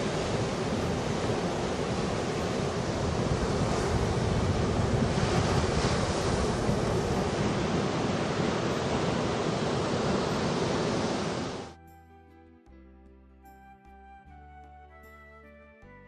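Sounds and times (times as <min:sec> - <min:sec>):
waves breaking on shore: 0:00.0 - 0:11.8.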